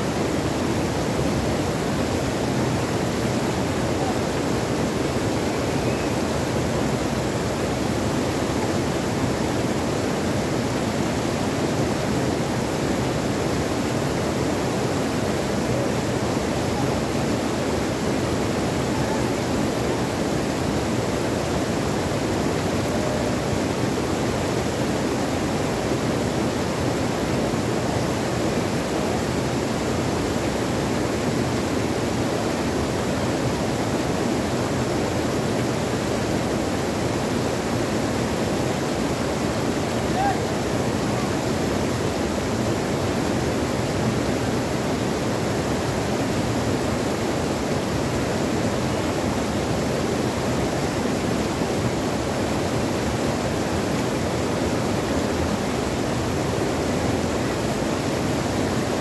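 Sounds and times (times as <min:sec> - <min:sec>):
stream water rushing over rocks: 0:00.0 - 0:59.0.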